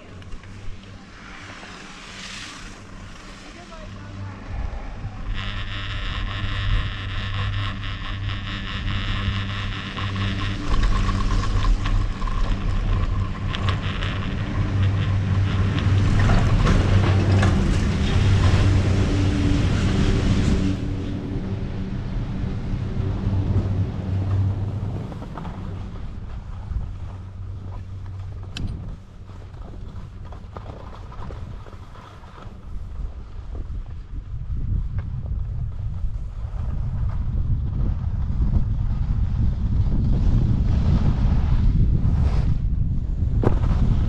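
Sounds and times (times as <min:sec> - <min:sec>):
chairlift machinery humming: 0:00.0 - 0:34.2
wind on microphone: 0:00.0 - 0:44.0.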